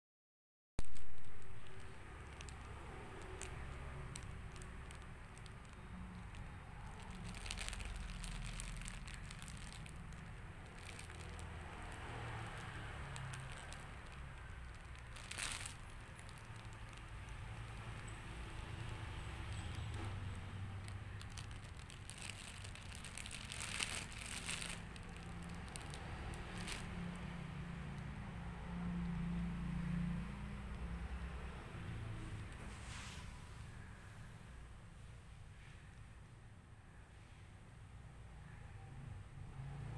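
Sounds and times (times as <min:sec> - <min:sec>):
plastic wrapping crinkling: 0:00.8 - 0:28.1.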